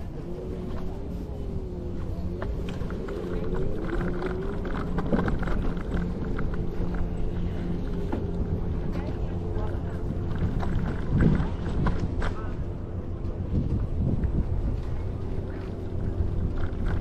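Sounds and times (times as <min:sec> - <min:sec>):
scooter motor hum: 0:00.0 - 0:17.0
wheels knocking and clicking: 0:00.0 - 0:17.0
wheels rolling rumble: 0:00.0 - 0:17.0.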